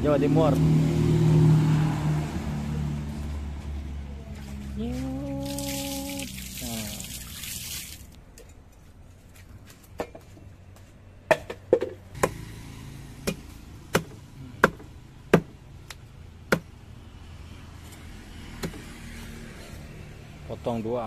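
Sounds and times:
cleaver chopping on wooden block: 0:13.2 - 0:15.6, 0:16.5 - 0:16.7.

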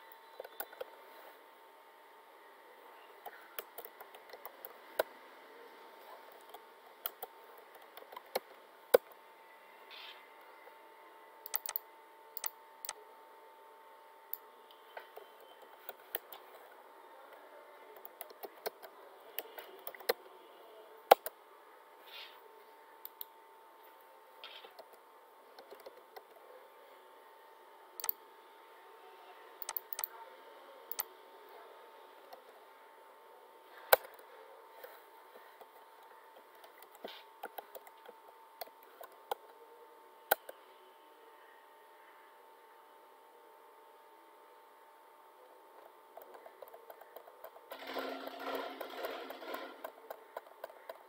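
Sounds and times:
faint steady hum: 0:00.0 - 0:51.0
keyboard typing: 0:00.3 - 0:00.9, 0:03.2 - 0:05.1, 0:06.2 - 0:09.2, 0:11.4 - 0:11.8, 0:12.4 - 0:13.0, 0:17.9 - 0:20.3, 0:24.4 - 0:26.4, 0:28.0 - 0:28.2, 0:29.6 - 0:30.1, 0:35.6 - 0:39.6, 0:45.7 - 0:51.0
mouse clicks: 0:00.3 - 0:00.9, 0:11.4 - 0:11.8, 0:12.4 - 0:13.0, 0:25.6 - 0:26.4, 0:28.0 - 0:28.2, 0:29.6 - 0:30.1, 0:30.9 - 0:31.1, 0:33.8 - 0:34.2, 0:40.3 - 0:40.6.

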